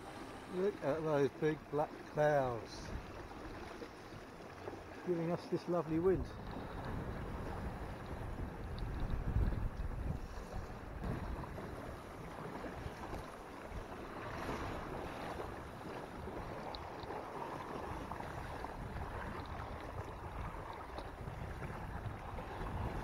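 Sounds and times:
water rushing along a hull: 0.0s - 23.0s
wind buffeting microphone: 6.0s - 23.0s.

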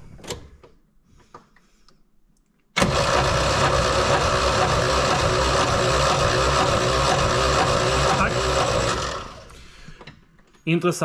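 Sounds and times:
engine cranking on starter: 2.8s - 10.0s.

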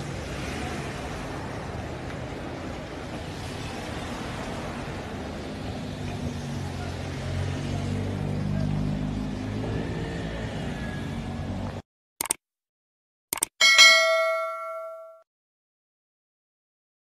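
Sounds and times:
road traffic: 0.0s - 11.8s, 13.4s - 15.1s.

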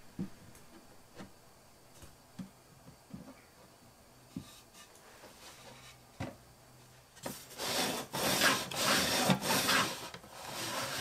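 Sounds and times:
wooden lid sliding in grooves: 7.2s - 11.0s.

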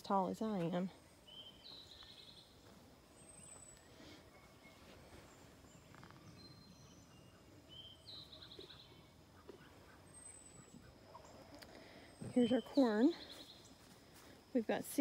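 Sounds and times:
faint garden ambience: 0.0s - 15.0s
songbird trilling: 5.6s - 13.8s.

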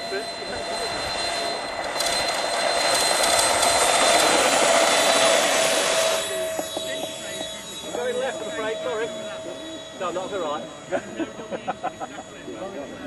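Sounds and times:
electric ducted fans whining: 0.0s - 13.0s.

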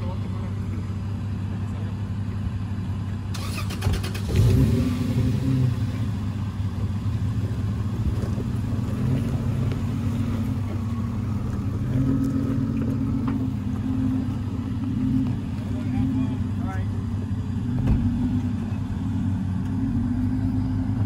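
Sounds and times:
car engine revving under load: 0.0s - 21.0s.

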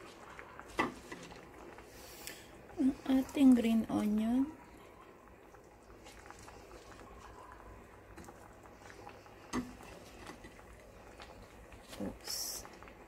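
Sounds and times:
onion pieces pattering into pan: 0.0s - 1.9s.

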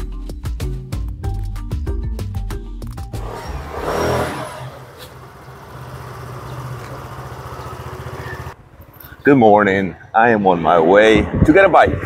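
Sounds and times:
vehicle engine running: 3.2s - 9.0s
road and traffic noise: 3.2s - 11.2s.

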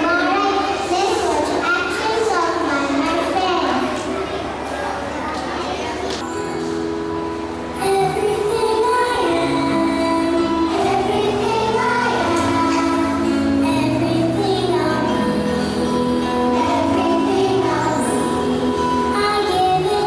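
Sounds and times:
song with singing voice: 6.3s - 20.0s.

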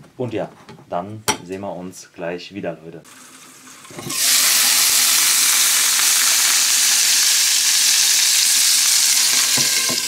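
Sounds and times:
fish sizzling in a pan: 3.1s - 10.0s.

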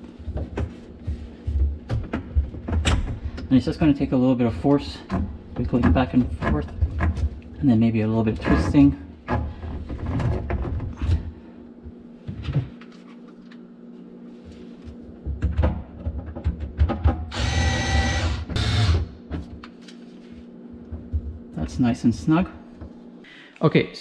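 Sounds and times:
cordless drill whirring: 17.3s - 19.1s.

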